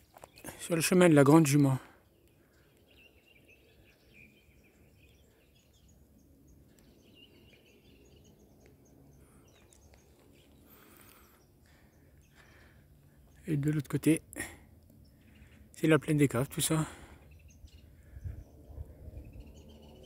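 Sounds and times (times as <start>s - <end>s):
faint bird twittering: 1.6s - 13.9s, 16.6s - 20.0s.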